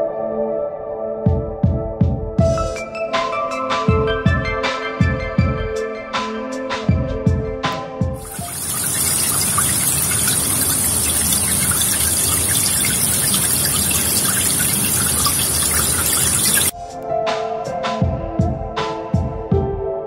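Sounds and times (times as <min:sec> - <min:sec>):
background music: 0:00.0 - 0:20.0
water splashing into stone channel: 0:08.2 - 0:16.7.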